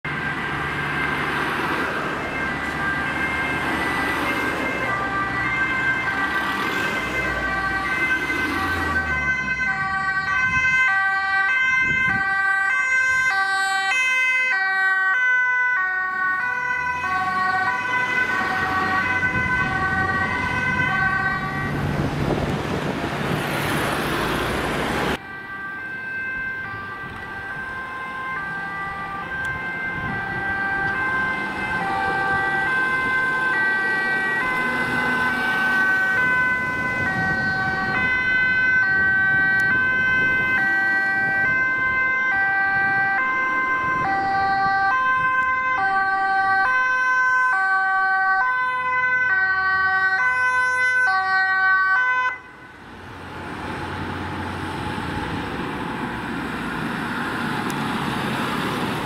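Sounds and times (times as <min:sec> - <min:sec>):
engine and road noise: 0:00.0 - 0:59.0
two-tone sirens: 0:00.0 - 0:59.0.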